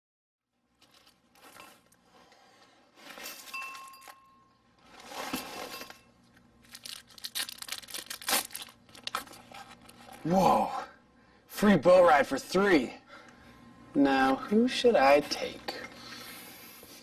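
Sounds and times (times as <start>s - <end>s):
paper rustling and tearing: 6.7s - 10.2s.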